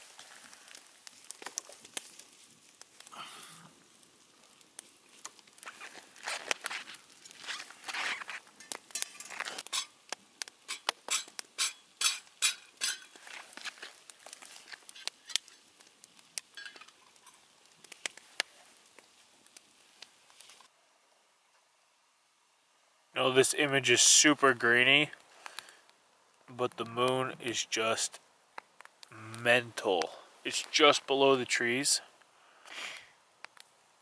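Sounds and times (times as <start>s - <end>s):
campfire crackling and popping: 0.0s - 20.8s, 23.2s - 34.0s.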